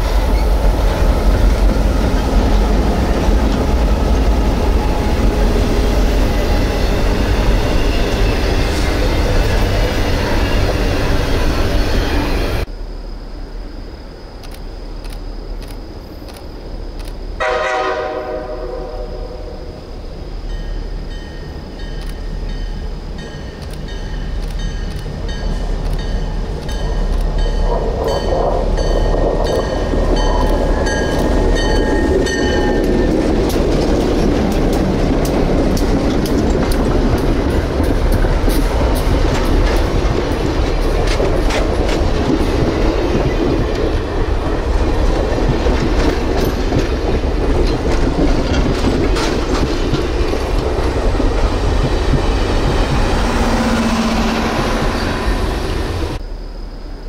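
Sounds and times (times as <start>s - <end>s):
train rumble: 0.0s - 57.0s
train horn blast: 17.4s - 19.8s
wheels clacking over rail joints: 21.1s - 56.2s.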